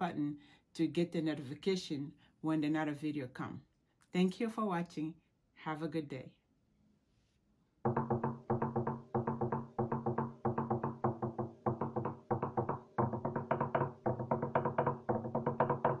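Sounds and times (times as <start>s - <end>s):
wooden slit drum beaten fast: 7.9s - 16.0s.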